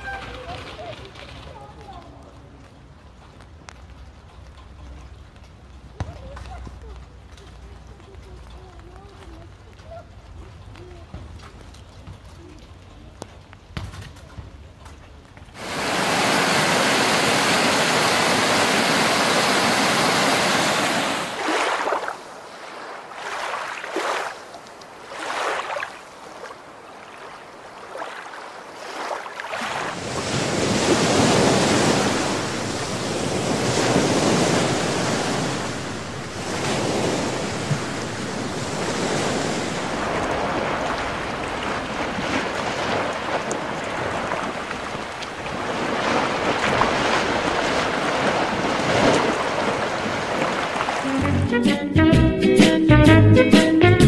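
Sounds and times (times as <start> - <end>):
mountain stream rushing: 0.0 - 1.5, 15.6 - 51.5
sea waves washing onto shore: 0.0 - 2.8, 15.6 - 51.5.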